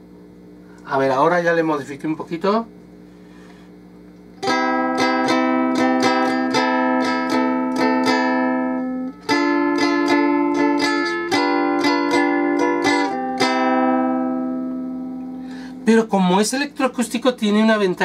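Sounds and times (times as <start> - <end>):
low amplifier hum: 0.0 - 18.0
ukulele strummed through amplifier: 4.4 - 15.5.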